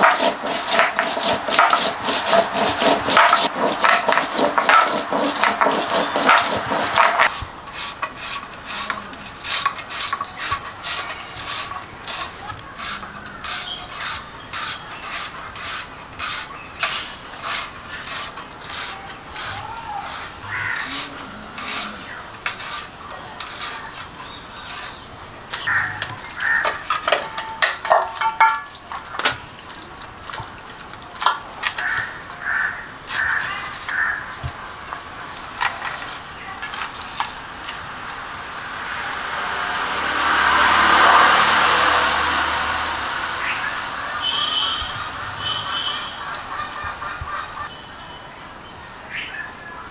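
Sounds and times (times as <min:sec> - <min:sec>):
short scraping or tapping: 0:00.0 - 0:25.0
crows cawing: 0:19.6 - 0:22.2, 0:25.6 - 0:27.5, 0:31.8 - 0:34.4.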